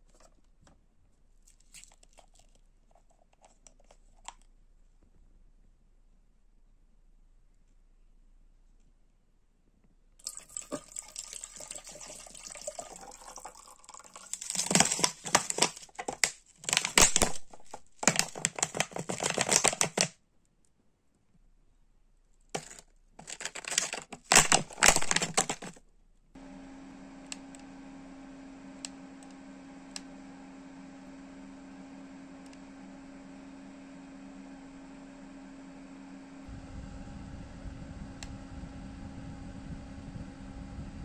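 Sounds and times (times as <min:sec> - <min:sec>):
air cooler humming: 0:26.4 - 0:41.0.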